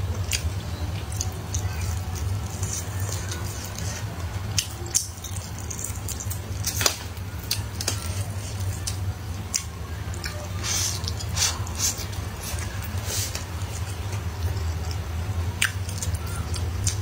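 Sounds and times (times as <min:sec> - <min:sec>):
steady low hum: 0:00.0 - 0:17.0
wet chewing and lip smacks: 0:00.2 - 0:06.8, 0:15.6 - 0:17.0.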